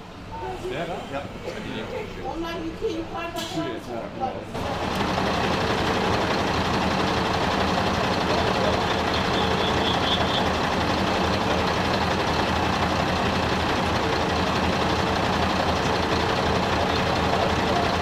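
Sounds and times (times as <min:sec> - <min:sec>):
engine running steadily: 0:04.6 - 0:18.0.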